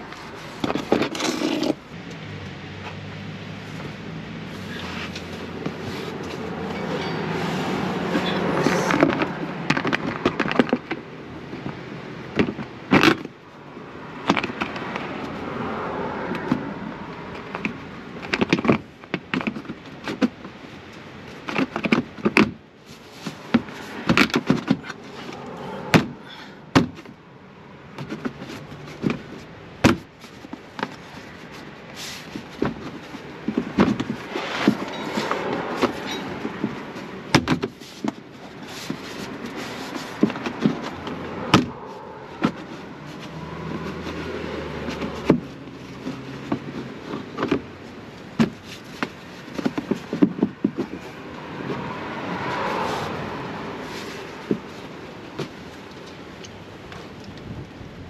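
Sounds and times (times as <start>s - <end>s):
plastic rubbing and rustling: 0.0s - 1.9s, 3.6s - 6.7s, 17.4s - 26.2s, 27.9s - 58.0s.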